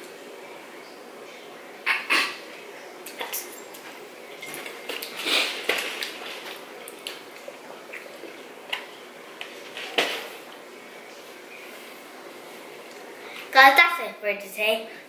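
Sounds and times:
squishy mouth noises: 4.9 - 8.9.

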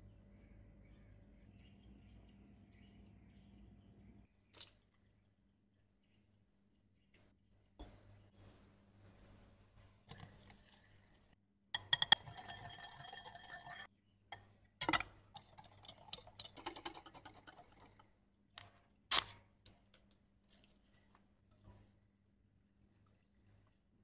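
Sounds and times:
kitchen utensils clinking: 10.0 - 13.9
whisk beating in glass bowl: 10.1 - 13.9, 15.4 - 18.0.

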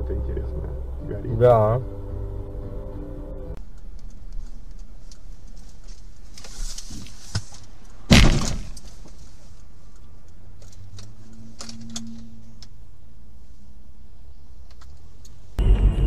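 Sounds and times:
car engine and road hum: 0.0 - 16.0
car crash: 8.1 - 8.9.

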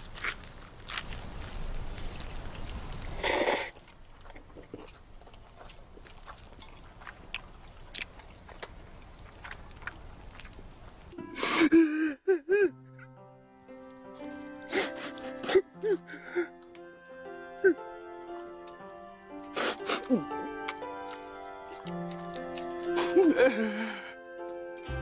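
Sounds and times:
man slurping noodles: 3.2 - 3.8, 19.5 - 20.2
chewing with small clicks: 3.8 - 11.2, 20.7 - 22.9
man sobbing: 11.2 - 12.8, 14.7 - 16.5, 17.5 - 17.8, 19.6 - 20.4, 22.9 - 24.2.

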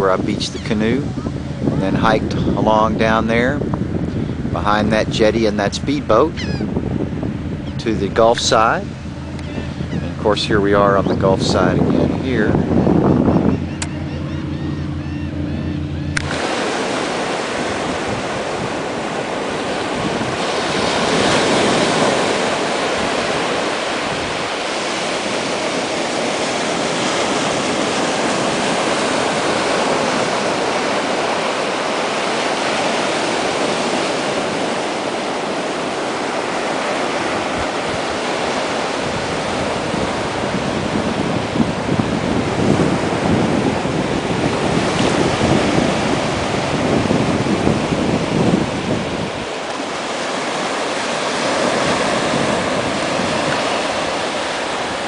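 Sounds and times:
low hum: 0.0 - 21.3
surf breaking on beach: 0.0 - 55.0
wind buffeting microphone: 0.0 - 55.0.

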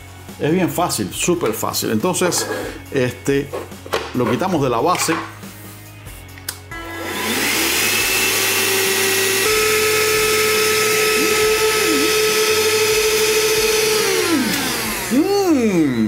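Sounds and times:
hand vacuum motor whining: 6.8 - 16.0.

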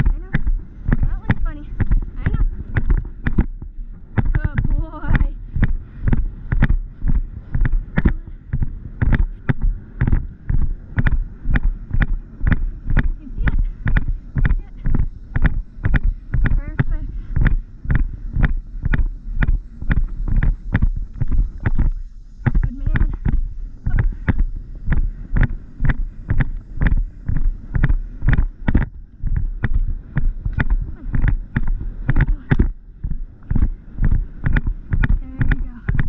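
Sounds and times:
horse hooves cantering on turf: 0.0 - 8.2
wind rumble on microphone: 0.0 - 36.0.

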